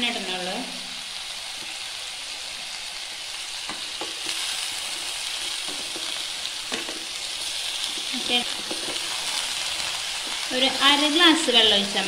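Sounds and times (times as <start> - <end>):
vegetables sizzling in oil: 0.0 - 12.0
wooden spoon knocking on pan: 5.5 - 6.1, 6.7 - 7.1, 7.9 - 9.1.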